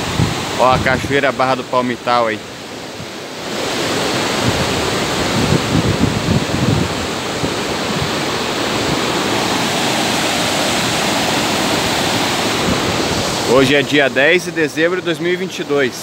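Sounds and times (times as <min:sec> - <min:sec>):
wind buffeting microphone: 0:00.0 - 0:01.3, 0:03.0 - 0:14.4
river waterfall and rapids rushing: 0:00.0 - 0:16.0.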